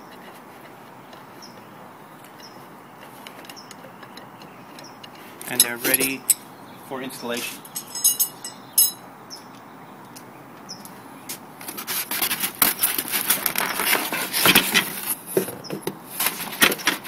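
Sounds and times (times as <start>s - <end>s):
sharp clink: 7.7s - 9.0s.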